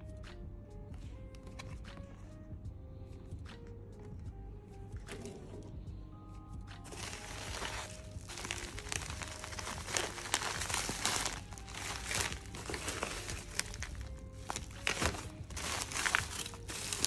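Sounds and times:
bubble wrap crinkling and crackling: 6.9 - 17.0.

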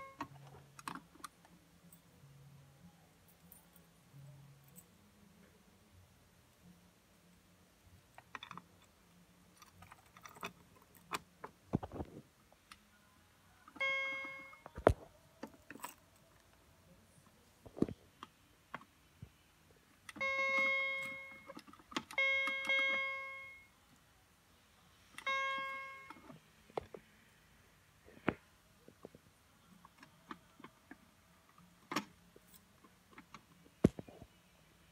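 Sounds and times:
fire alarm chimes: 13.8 - 14.6, 20.2 - 21.4, 22.2 - 23.7, 25.2 - 26.2.

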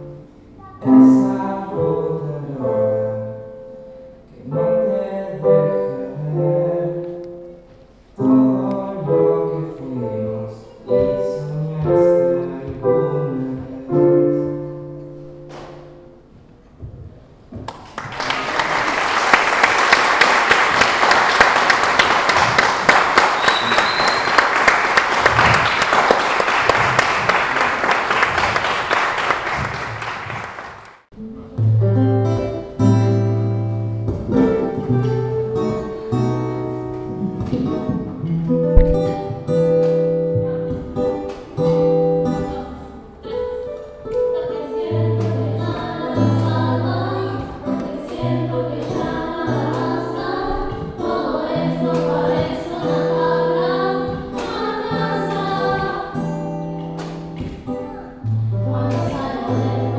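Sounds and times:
young voices singing together: 8.2 - 14.6, 41.4 - 56.6, 57.6 - 59.9
audience applauding: 17.7 - 31.1.

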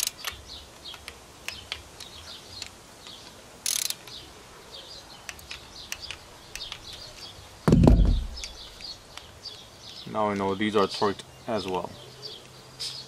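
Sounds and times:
torque wrench clicking: 0.0 - 2.8, 3.6 - 4.2
loud low thump: 7.7 - 8.5.

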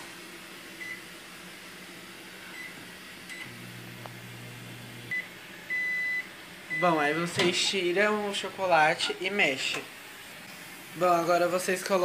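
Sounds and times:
microwave humming: 0.0 - 12.0
microwave keypad beeps: 0.8 - 1.0, 2.5 - 3.6, 5.1 - 7.4.

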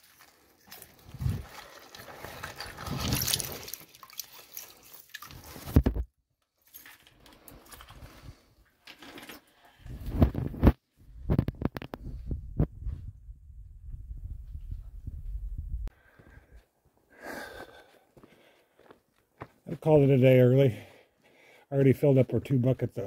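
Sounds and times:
tool scraping through muddy water: 0.0 - 5.8.

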